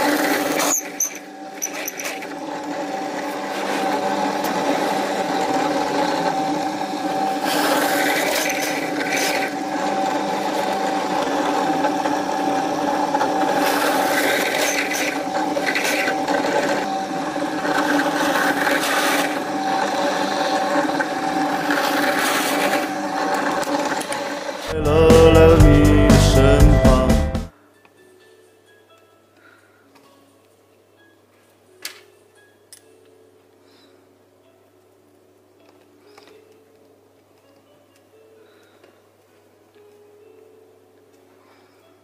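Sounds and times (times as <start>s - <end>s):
drill bit boring into wood: 0.0s - 24.7s
drill press motor hum: 0.0s - 26.9s.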